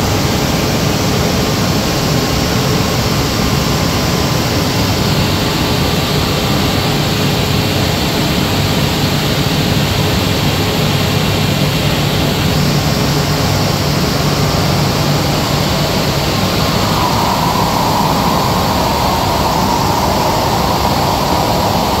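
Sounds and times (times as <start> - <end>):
low hum: 14.8 - 22.0
high steady tone: 15.5 - 22.0.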